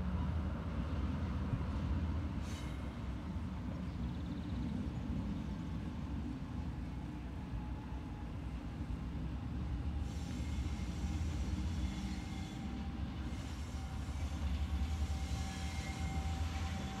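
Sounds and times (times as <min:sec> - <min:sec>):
train engines rumbling: 0:00.0 - 0:17.0
faint wheel squeal: 0:10.0 - 0:17.0.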